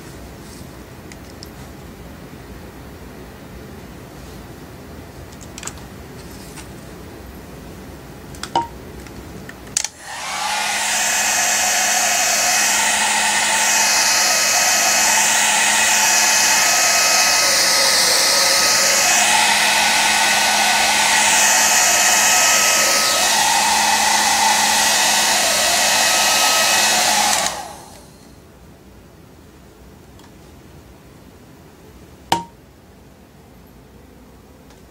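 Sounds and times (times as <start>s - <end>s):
hair dryer blowing: 9.9s - 28.3s.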